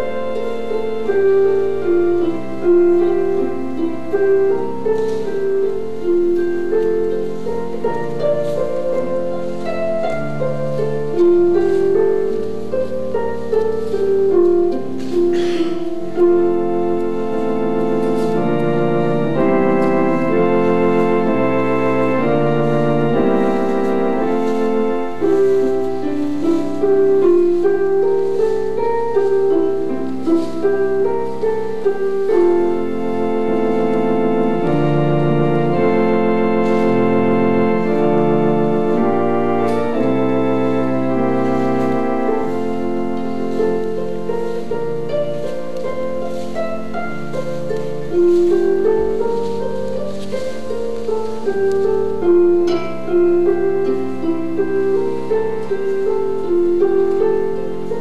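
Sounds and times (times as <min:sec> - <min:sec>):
organ playing slow chords: 0:00.0 - 0:58.0.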